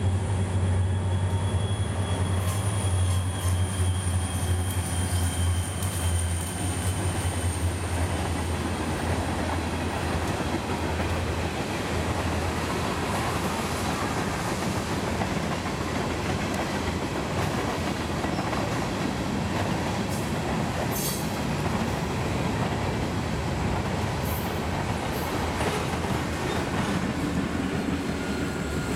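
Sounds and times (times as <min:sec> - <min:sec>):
high wheel squeal: 0:00.0 - 0:07.9, 0:27.9 - 0:28.9
diesel locomotive engines droning: 0:00.0 - 0:28.9.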